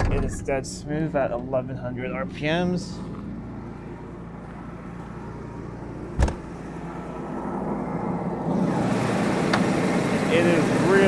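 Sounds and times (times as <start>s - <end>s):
car engine idling: 0.4s - 11.0s
sharp thump: 6.2s - 6.5s.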